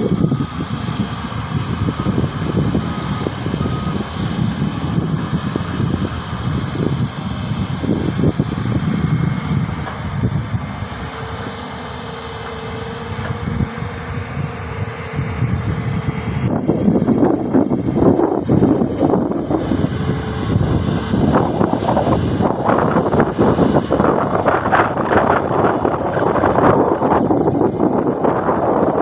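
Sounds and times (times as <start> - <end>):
excavator diesel engine rumbling: 0.0 - 29.0
steady whine: 0.0 - 29.0.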